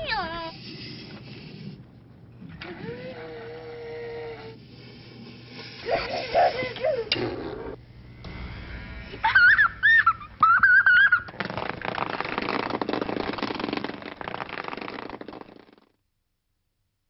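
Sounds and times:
boy buzzing lip-trill: 0:02.5 - 0:15.9.

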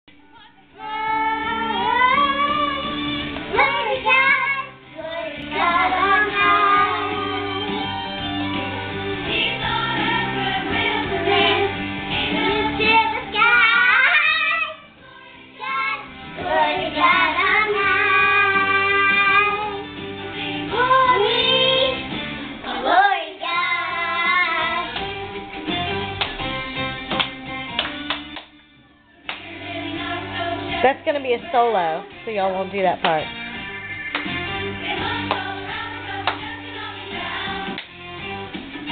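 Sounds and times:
music playing: 0:00.1 - 0:38.9
girls singing loudly: 0:00.8 - 0:07.8, 0:09.3 - 0:19.8, 0:22.6 - 0:25.0, 0:34.6 - 0:37.8.

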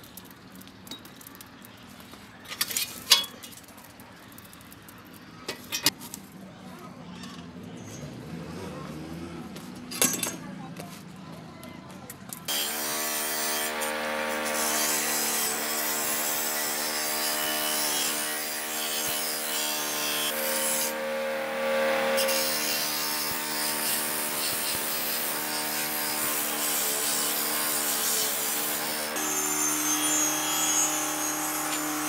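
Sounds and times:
wire brush scraping metal: 0:12.5 - 0:32.0
bench grinder motor whine: 0:16.4 - 0:26.2, 0:27.6 - 0:32.0.

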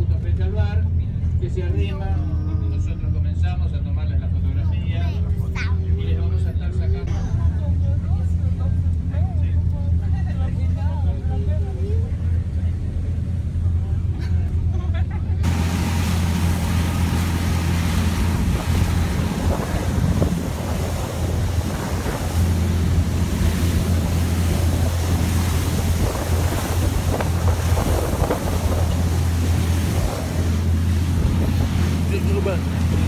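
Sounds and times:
boat engine droning: 0:00.0 - 0:33.0
water rushing along hull: 0:00.0 - 0:33.0
wind buffeting microphone: 0:15.4 - 0:33.0.

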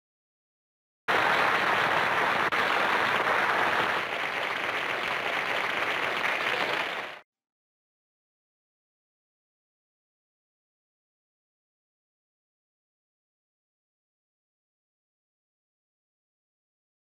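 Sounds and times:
audience applauding: 0:01.1 - 0:07.2.

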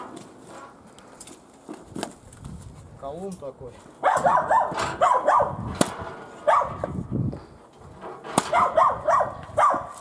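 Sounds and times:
dog barking: 0:04.0 - 0:05.6, 0:06.4 - 0:06.8, 0:08.5 - 0:10.0
log splitter blade knocking: 0:08.2 - 0:08.8.

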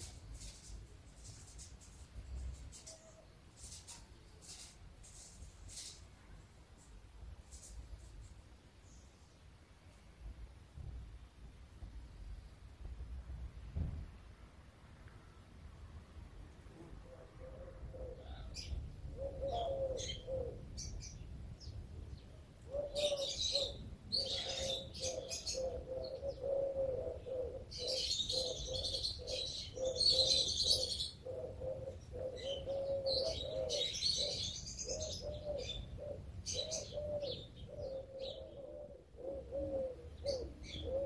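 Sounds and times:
low repeated bird call: 0:17.0 - 0:21.2, 0:22.7 - 0:41.0
birds chirping: 0:17.5 - 0:41.0.

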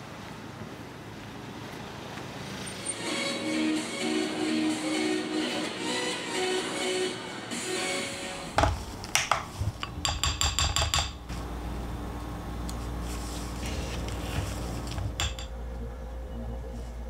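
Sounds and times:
low steady hum: 0:10.8 - 0:17.0
spoon clinking against glass bowl: 0:15.2 - 0:15.5.

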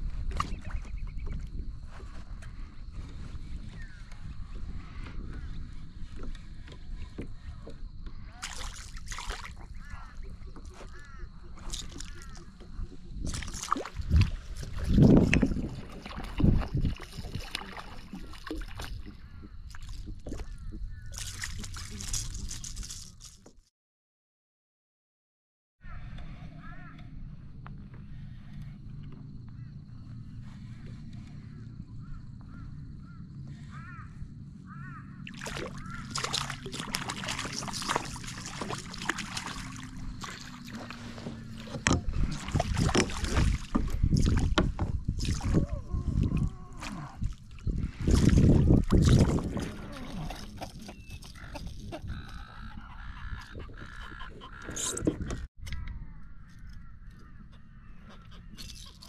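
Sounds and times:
water sloshing: 0:05.2 - 0:23.2, 0:34.7 - 0:55.5
fish splashing at surface: 0:35.3 - 0:44.6.

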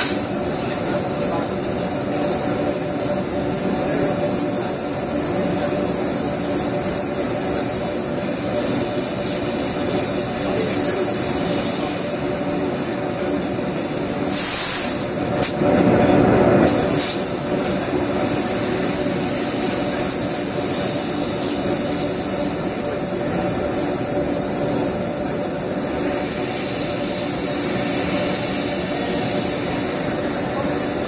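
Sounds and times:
laser cutter hum and hiss: 0:00.0 - 0:31.0
faint high whistle: 0:02.0 - 0:08.8.

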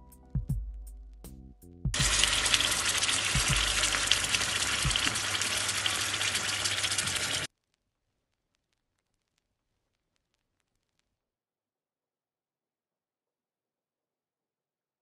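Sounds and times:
music: 0:00.0 - 0:07.0
prawns sizzling in hot oil: 0:02.0 - 0:07.5.

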